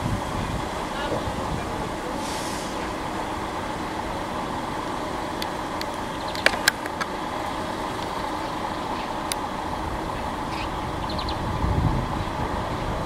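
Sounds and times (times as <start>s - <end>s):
vehicle engine idling: 0.0s - 13.0s
sharp clicks: 5.4s - 7.2s.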